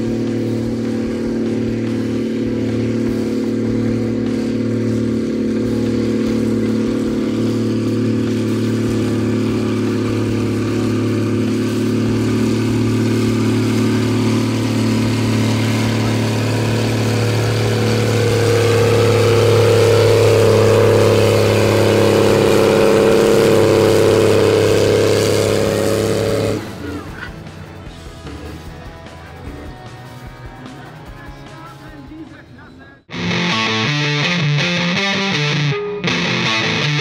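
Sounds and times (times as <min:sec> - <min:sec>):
tractor diesel engine under load: 0:00.0 - 0:32.2.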